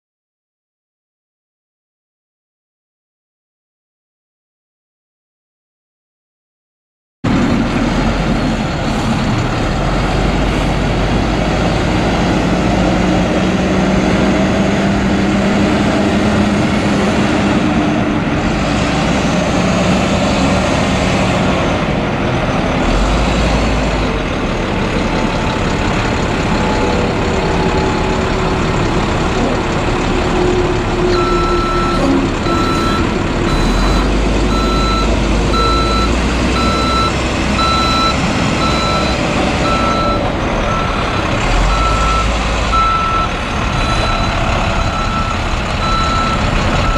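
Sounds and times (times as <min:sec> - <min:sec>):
diesel truck engine running: 0:07.3 - 0:46.9
backup alarm beeping: 0:31.1 - 0:41.0, 0:41.7 - 0:46.9.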